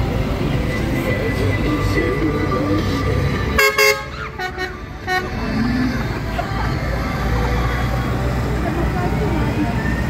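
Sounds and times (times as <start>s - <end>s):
tractor engine rumbling: 0.0s - 10.0s
tractor horn honking: 3.6s - 5.5s.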